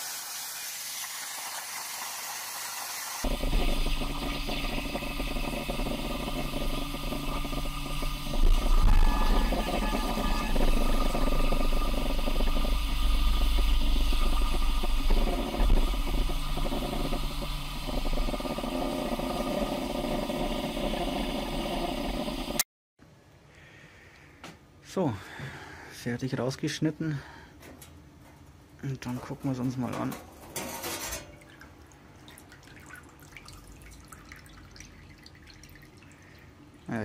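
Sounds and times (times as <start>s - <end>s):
plasma torch arc hissing: 0.0s - 22.6s
low hum: 3.3s - 22.6s.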